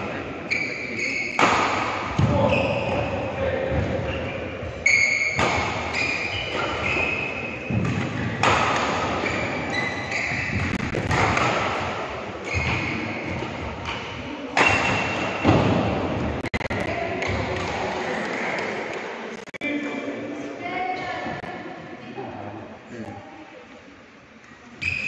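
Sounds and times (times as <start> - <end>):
shoes squeaking on court floor: 0.4 - 1.5, 4.1 - 8.4, 9.1 - 11.0, 12.4 - 14.0
rackets striking shuttlecock: 7.7 - 9.4, 10.5 - 15.7.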